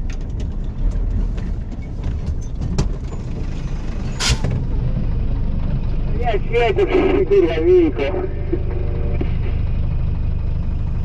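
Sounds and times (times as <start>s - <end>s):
knocks and rattles: 0.0s - 5.1s
diesel truck engine rumbling: 0.0s - 11.0s.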